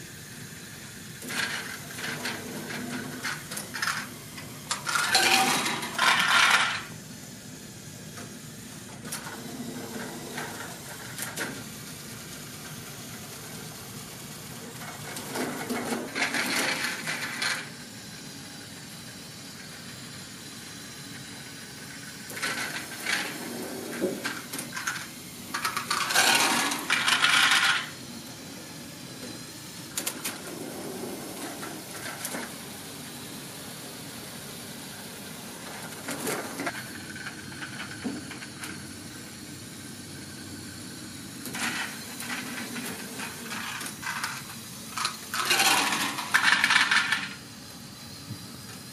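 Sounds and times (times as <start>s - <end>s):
plastic balls rattling: 4.7s - 6.9s, 24.2s - 27.9s, 45.0s - 47.4s
plastic parts clattering: 4.7s - 6.9s, 23.9s - 27.9s, 41.6s - 47.4s.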